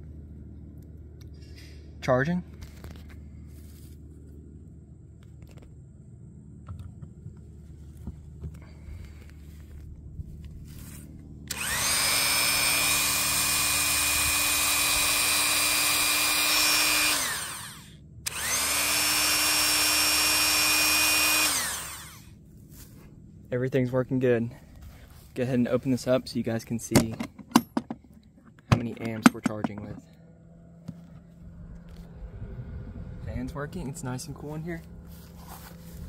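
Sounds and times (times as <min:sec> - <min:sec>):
rotary tool whining: 0:06.7 - 0:23.1.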